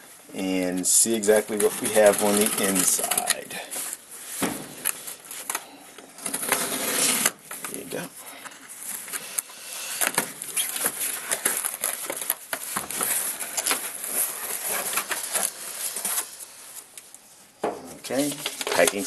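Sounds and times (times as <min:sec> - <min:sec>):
cardboard flaps scraping: 0:01.3 - 0:05.4, 0:06.2 - 0:07.9
tape tearing: 0:01.3 - 0:05.6, 0:06.2 - 0:08.0, 0:09.0 - 0:16.6.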